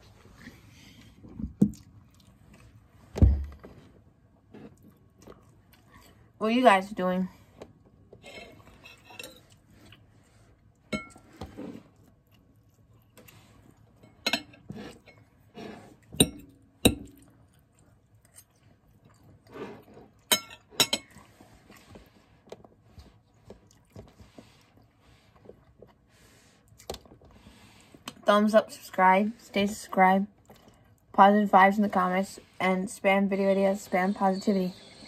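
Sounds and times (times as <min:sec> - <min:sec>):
soft chewing: 0:00.0 - 0:06.4, 0:07.4 - 0:16.2, 0:17.0 - 0:28.3, 0:30.3 - 0:31.2.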